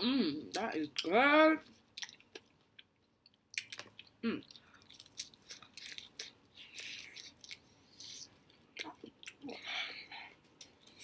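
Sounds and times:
crunchy chewing: 2.0 - 9.4.

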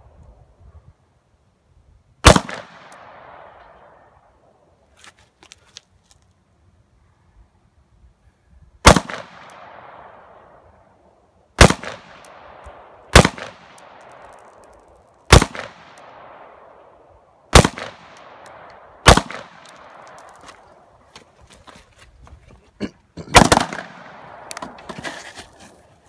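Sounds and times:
rifle shots with echo: 2.2 - 3.7, 8.8 - 10.5, 11.6 - 14.3, 15.3 - 16.8, 17.5 - 20.5, 23.3 - 24.7.

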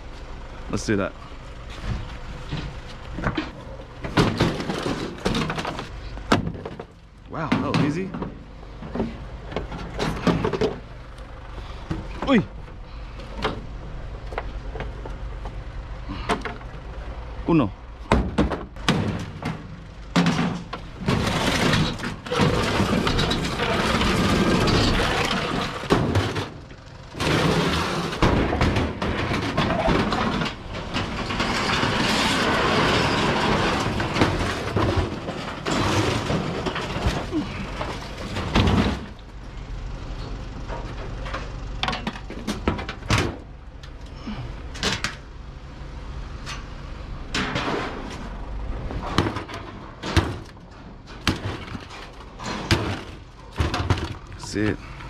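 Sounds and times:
metal cabinet scraping on concrete: 20.2 - 26.6, 27.2 - 39.2.

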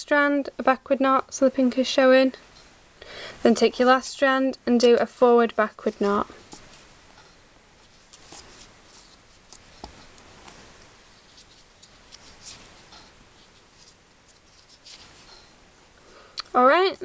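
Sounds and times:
rustling of thread being knotted: 3.4 - 15.6.

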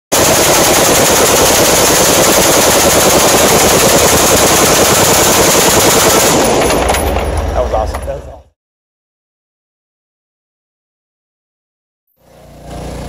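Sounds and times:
machine gun automatic fire: 0.1 - 7.8.

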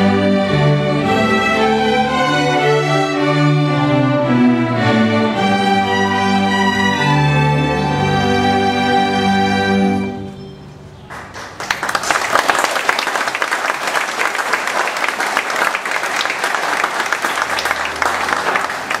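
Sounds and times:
audience applauding: 11.1 - 19.0.

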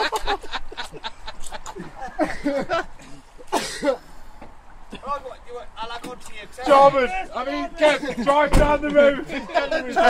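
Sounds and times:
person coughing: 3.0 - 4.0.

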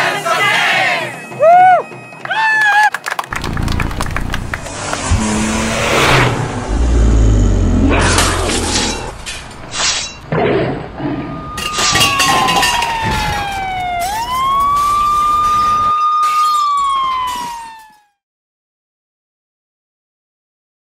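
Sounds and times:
siren-like whistling tone: 10.9 - 18.2.

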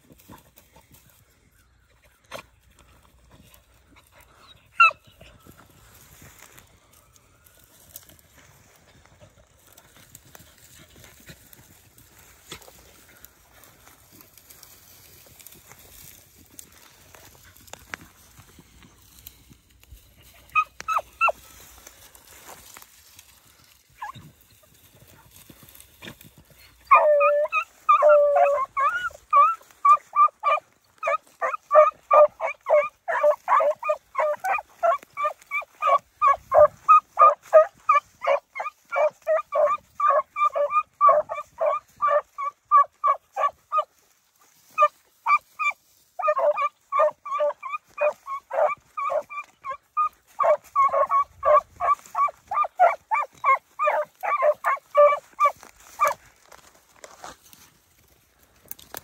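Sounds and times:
dogs baying: 20.2 - 21.5, 26.4 - 43.9, 44.7 - 56.2.

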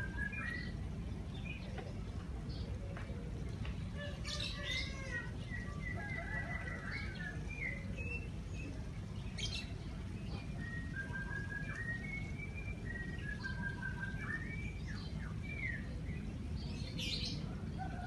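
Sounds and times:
birds singing: 0.0 - 18.0
low city rumble: 0.0 - 18.0
bird chirps: 9.4 - 16.0.

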